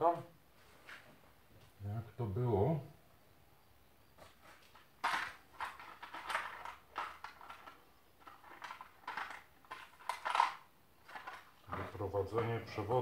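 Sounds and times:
small parts rattling in plastic container: 4.4s - 12.1s.

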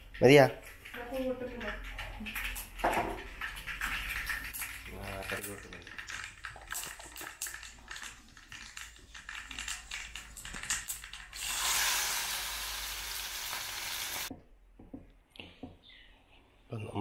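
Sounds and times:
utensils clicking and knocking: 0.0s - 11.8s.

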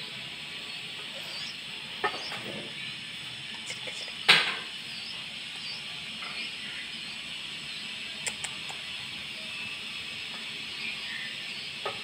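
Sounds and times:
nestling birds peeping: 0.0s - 12.0s
steady hiss: 0.0s - 12.0s.

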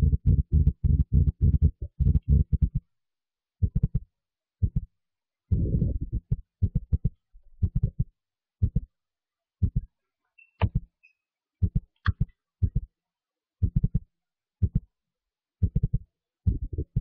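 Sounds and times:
low dull thumps: 0.0s - 2.8s, 5.5s - 8.0s, 15.6s - 17.0s.

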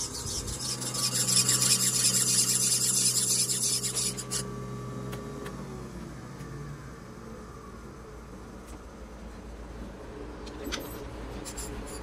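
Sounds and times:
grinding wheel rasping on metal: 0.0s - 4.5s, 11.4s - 12.0s
machine motor hum: 0.0s - 10.4s.

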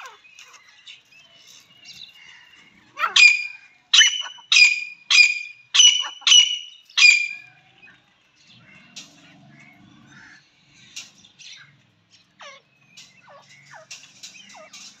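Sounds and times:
francolin calling: 3.0s - 7.5s.

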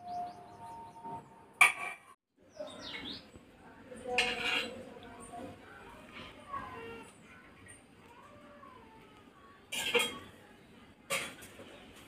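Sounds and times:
metal kitchenware clattering: 1.6s - 2.2s, 4.1s - 4.8s, 9.7s - 10.3s, 11.1s - 11.8s.

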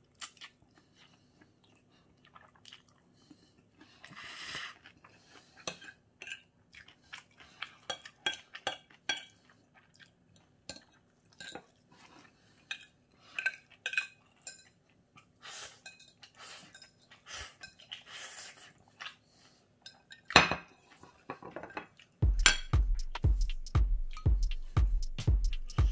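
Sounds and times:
fork clinking on ceramic plate: 21.4s - 22.7s.

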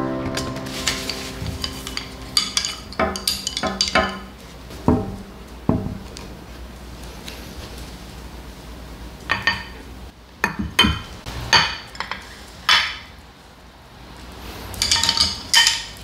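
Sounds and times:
background music: 0.0s - 3.1s
dishes and cutlery clinking: 0.3s - 4.4s, 9.3s - 9.8s, 14.8s - 16.0s.

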